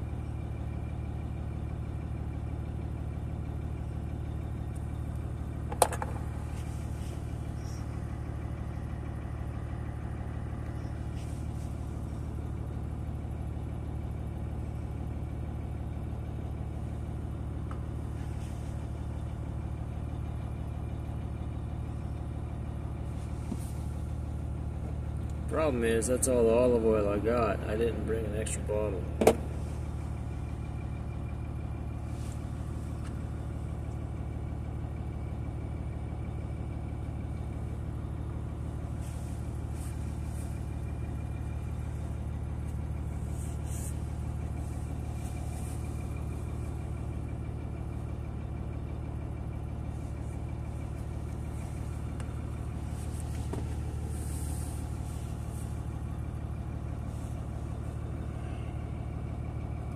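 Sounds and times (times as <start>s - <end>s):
low mechanical hum: 0.0s - 59.9s.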